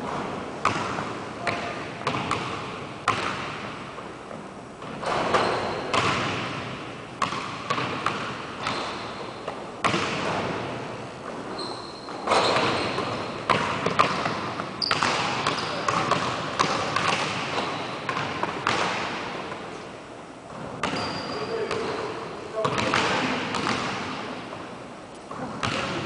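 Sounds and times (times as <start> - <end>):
shoe squeak: 5.3 - 5.9, 11.5 - 13.4, 14.8 - 15.9, 20.8 - 22.0
basketball bouncing on hardwood: 12.3 - 19.2, 22.6 - 24.0, 25.6 - 26.0.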